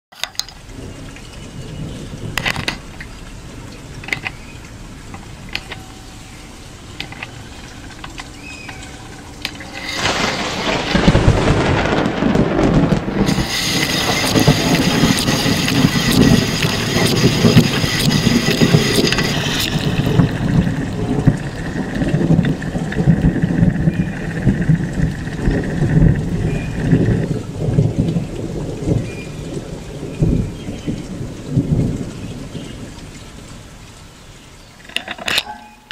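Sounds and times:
rain drop clicks: 0.1 - 35.9
heavy rush of rain: 0.2 - 35.3
high-pitched whine: 5.5 - 12.0, 13.2 - 27.2.

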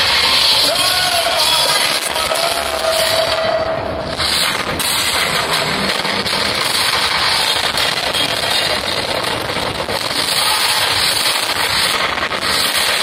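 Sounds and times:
crackling and hissing with pops: 4.0 - 13.0.

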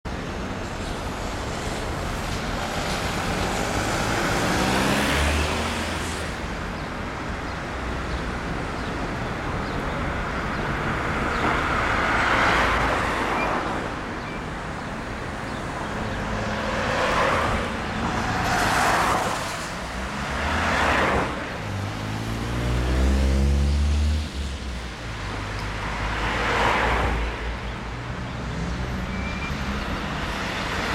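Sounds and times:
cars passing: 0.1 - 30.9
street hum: 0.1 - 30.9.

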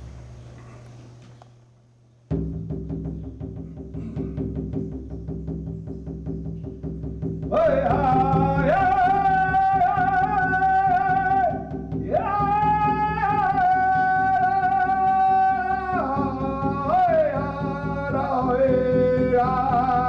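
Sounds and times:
person singing long held notes: 7.5 - 20.0.

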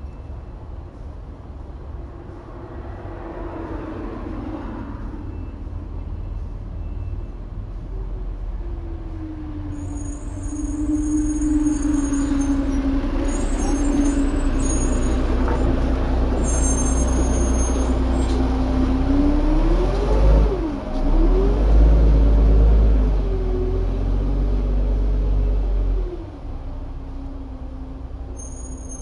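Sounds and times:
diesel truck engine revving: 9.8 - 26.9.

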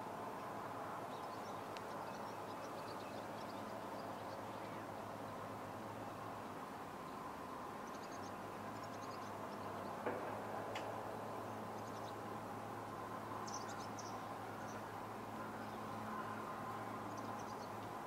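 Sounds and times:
steady outdoor hum: 0.0 - 18.0
small birds chirping: 1.1 - 5.4, 7.8 - 10.0, 13.4 - 17.9
brief knock: 10.0 - 10.9.

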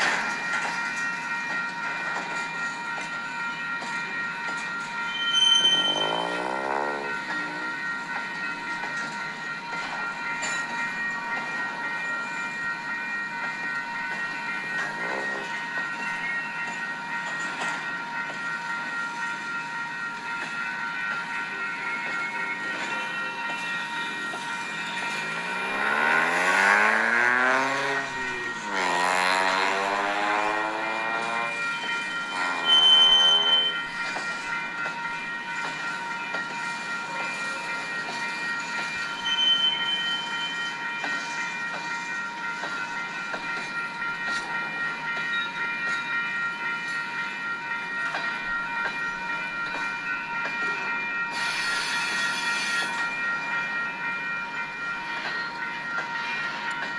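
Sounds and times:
train wheels squealing: 3.5 - 12.5, 20.2 - 47.4, 49.7 - 53.8
high-pitched wheel squeal: 5.1 - 7.5, 32.3 - 33.8.

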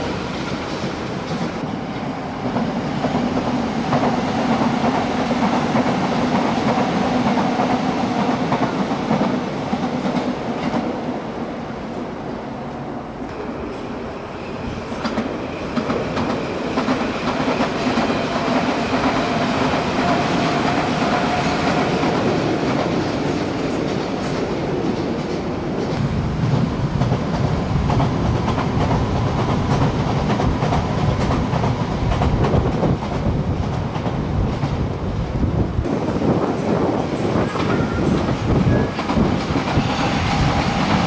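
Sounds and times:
train wheels clacking over rails: 0.0 - 11.0, 13.4 - 34.8, 35.8 - 41.0.

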